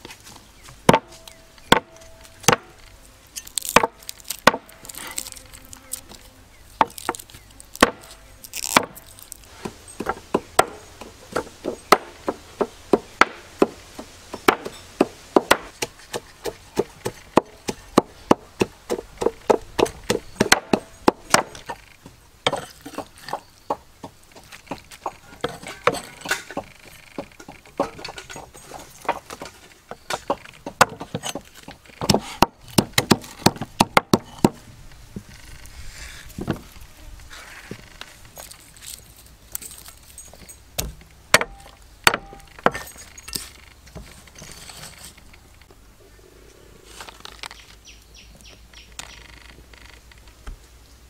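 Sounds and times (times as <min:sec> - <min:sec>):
chopping wood: 0:00.8 - 0:02.8, 0:03.6 - 0:05.1, 0:06.8 - 0:21.8, 0:30.1 - 0:34.6, 0:40.8 - 0:43.0.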